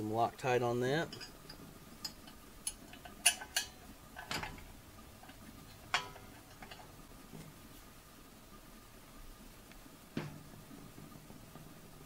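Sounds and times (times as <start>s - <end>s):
metal bolts clicking on metal pan: 1.1s - 4.6s, 5.2s - 6.9s.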